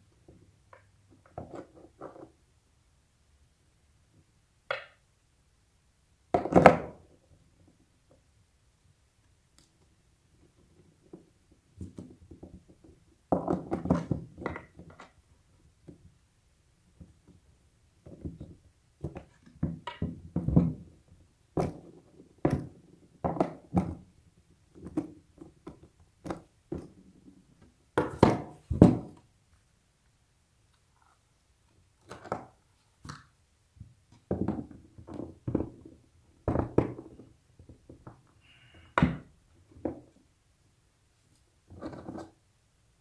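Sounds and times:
knocks and clicks of skateboard parts: 0:06.3 - 0:07.1.

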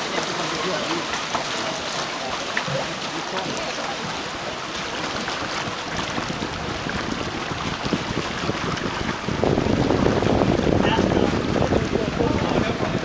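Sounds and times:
water lapping: 0:00.0 - 0:13.0
wind buffeting the microphone: 0:05.2 - 0:13.0.

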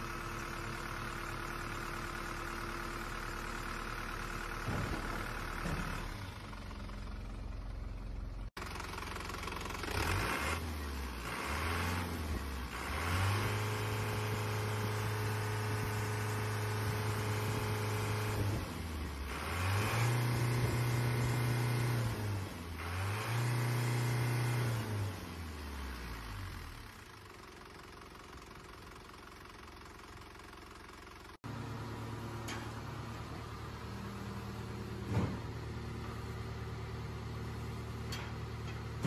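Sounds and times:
diesel engine idling: 0:00.0 - 0:19.7, 0:25.4 - 0:39.0
diesel truck engine revving: 0:08.3 - 0:27.1.

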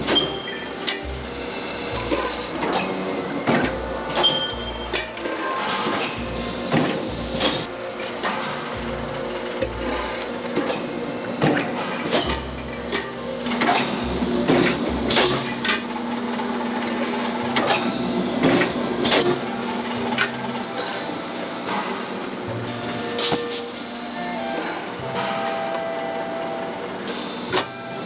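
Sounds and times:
machine hum: 0:00.0 - 0:28.0
metal parts clanking: 0:02.0 - 0:06.2, 0:23.1 - 0:25.8.

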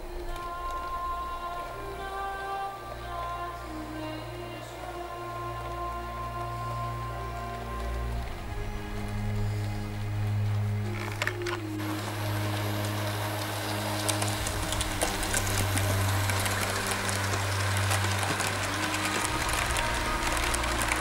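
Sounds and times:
wheels clicking over rail joints: 0:00.0 - 0:21.0.

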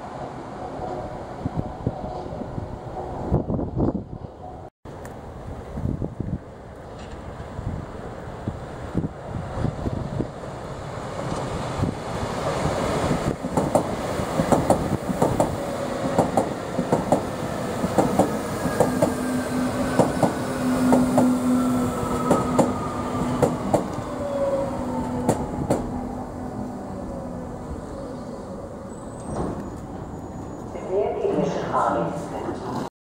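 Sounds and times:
train wheels clicking over rail joints: 0:13.4 - 0:19.2, 0:19.9 - 0:21.4, 0:25.2 - 0:25.9.

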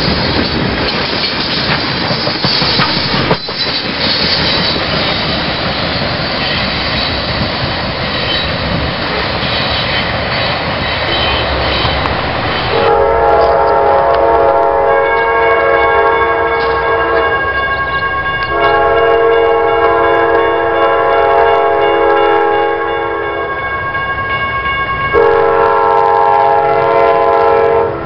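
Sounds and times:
freight train cars rumbling and rattling: 0:00.0 - 0:28.0
locomotive air horn chord: 0:11.1 - 0:17.5, 0:18.5 - 0:23.6, 0:25.2 - 0:28.0.

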